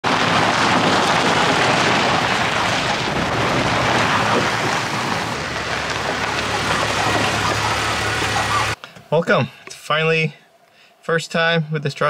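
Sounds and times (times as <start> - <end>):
tyres crunching over gravel: 0.0 - 8.8
engine low hum: 3.2 - 8.8.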